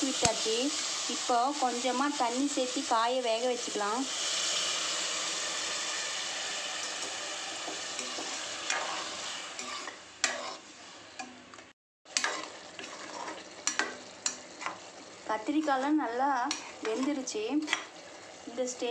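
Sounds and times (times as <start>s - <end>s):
frying vegetables sizzling: 0.0s - 18.9s
metal ladle scraping a pan: 4.2s - 11.3s, 12.1s - 14.9s, 16.5s - 18.3s.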